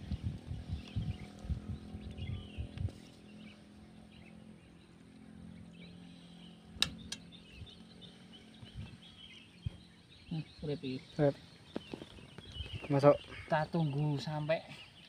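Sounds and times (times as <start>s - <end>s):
birds chirping: 0.0s - 15.0s
sharp clicks: 6.8s - 7.3s.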